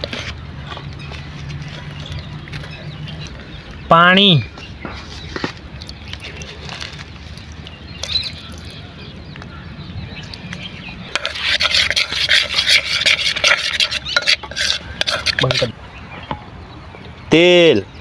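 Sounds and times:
wet batter scraping metal pot: 11.1s - 15.8s.

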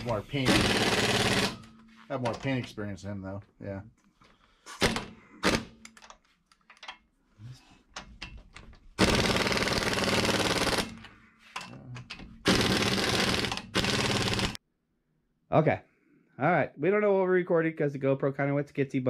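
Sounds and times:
impact wrench hammering rattle: 0.0s - 2.7s, 7.9s - 14.6s.

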